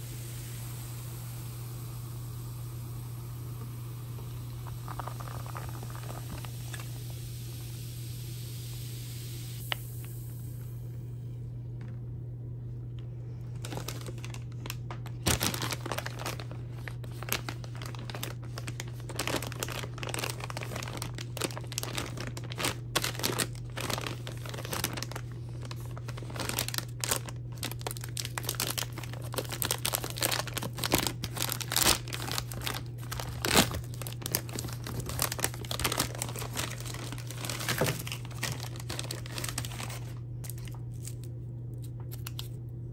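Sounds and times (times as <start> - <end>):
steady low hum: 0.0 - 42.9
plastic candy bag crinkling: 4.2 - 7.0, 13.4 - 42.6.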